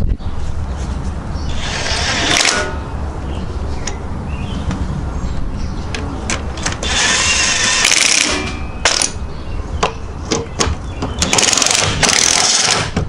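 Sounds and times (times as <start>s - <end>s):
impact wrench hammering bolts: 1.9s - 2.8s, 6.3s - 9.2s, 9.8s - 13.0s.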